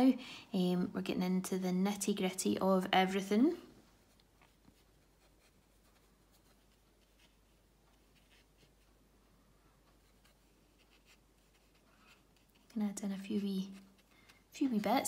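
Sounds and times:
paintbrush scratching on paper: 0:04.3 - 0:09.1, 0:09.8 - 0:14.9.

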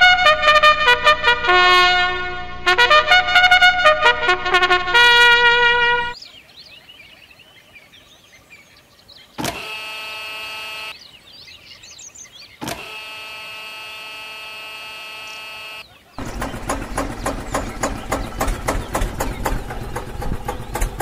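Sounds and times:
faint birdsong: 0:05.8 - 0:21.0
small electric motor whining: 0:09.4 - 0:10.9, 0:12.6 - 0:16.3.

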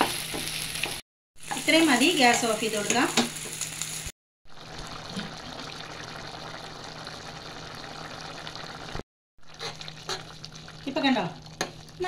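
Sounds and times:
curry bubbling in a pan: 0:04.5 - 0:12.0.

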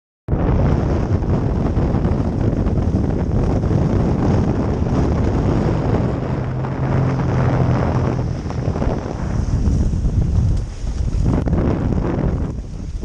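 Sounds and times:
wind buffeting microphone: 0:00.3 - 0:13.0
water rushing and splashing: 0:00.6 - 0:13.0
low steady hum: 0:01.2 - 0:10.6.

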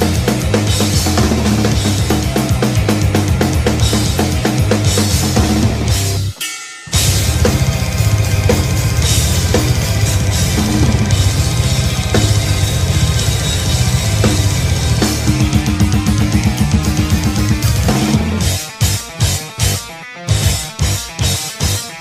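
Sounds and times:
fast bass drum strokes: 0:00.0 - 0:21.8
recorded metal song: 0:00.0 - 0:22.0
cymbal wash: 0:06.1 - 0:15.5.

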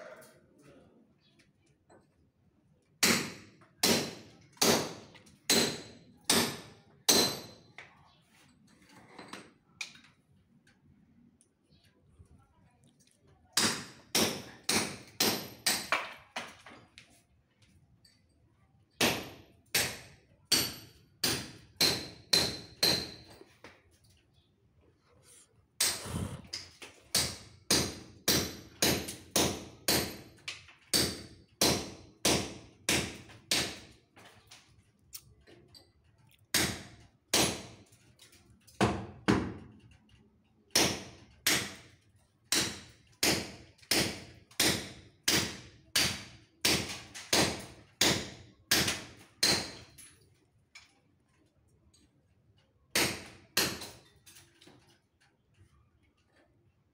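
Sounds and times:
hammer striking brick wall: 0:03.0 - 0:08.0, 0:13.6 - 0:16.8, 0:19.0 - 0:23.8, 0:25.8 - 0:34.3, 0:36.5 - 0:38.0, 0:38.8 - 0:39.8, 0:40.7 - 0:50.1, 0:52.9 - 0:54.2.

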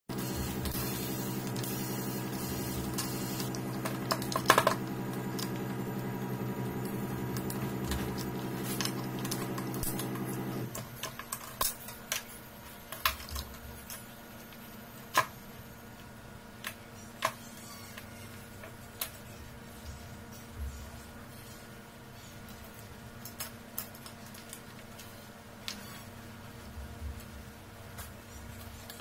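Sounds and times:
steady hum: 0:00.1 - 0:11.1.

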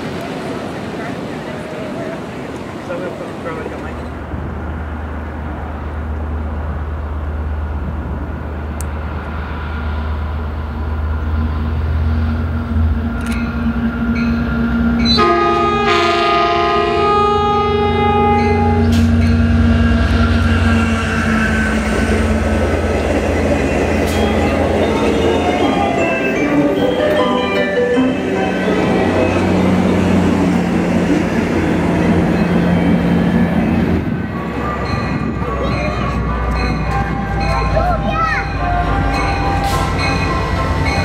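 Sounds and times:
diesel locomotive engine rumble: 0:00.0 - 0:41.0
multi-note train air horn: 0:15.1 - 0:19.8.

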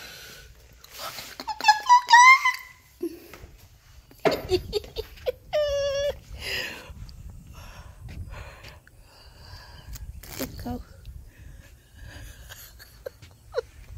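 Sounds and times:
person giggling: 0:01.1 - 0:02.4, 0:04.1 - 0:06.2, 0:12.1 - 0:13.9.

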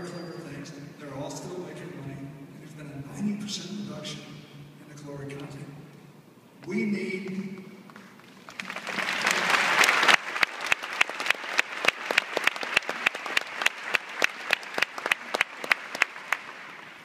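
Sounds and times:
loud steady clapper: 0:07.9 - 0:17.0
audience applause: 0:08.2 - 0:17.0.

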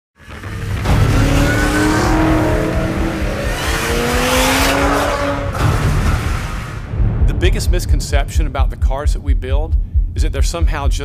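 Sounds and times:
car engine accelerating hard: 0:00.2 - 0:06.8.

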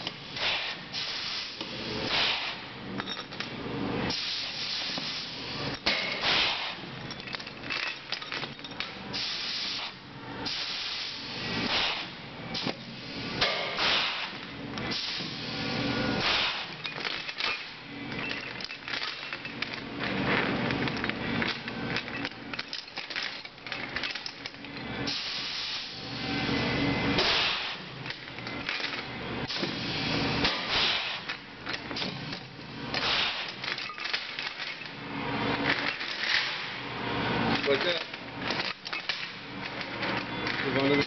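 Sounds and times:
pneumatic tool air hiss: 0:00.3 - 0:02.7, 0:04.1 - 0:06.8, 0:09.1 - 0:16.8, 0:25.1 - 0:26.2, 0:27.2 - 0:27.9, 0:29.5 - 0:31.3, 0:33.0 - 0:33.6
steel chain links clanking: 0:07.0 - 0:09.0.

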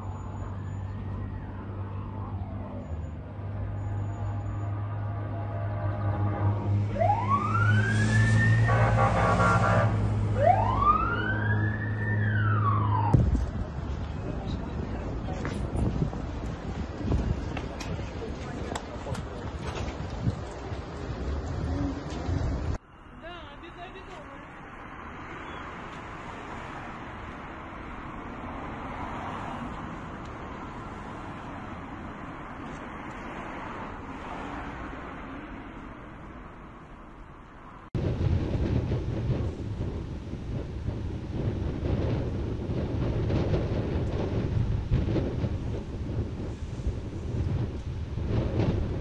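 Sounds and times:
road traffic noise: 0:00.0 - 0:49.0
emergency siren wailing: 0:00.1 - 0:13.3
car driving past: 0:03.4 - 0:13.3.

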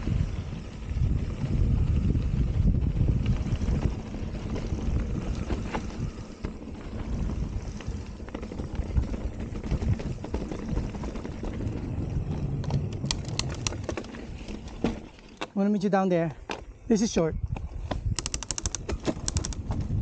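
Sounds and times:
wind buffeting microphone: 0:00.0 - 0:14.8, 0:17.2 - 0:20.0
bicycle clicks: 0:02.1 - 0:14.8, 0:17.9 - 0:20.0.

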